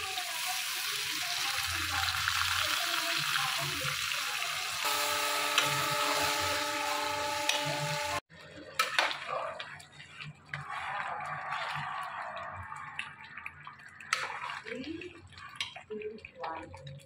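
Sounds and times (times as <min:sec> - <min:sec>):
food sizzling in a metal pan: 0:00.0 - 0:09.0
water sloshing and splashing: 0:08.5 - 0:17.0.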